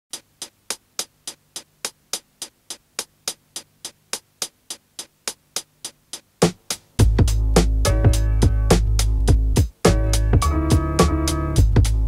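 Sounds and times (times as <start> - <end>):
sharp ticks: 0.1 - 6.4.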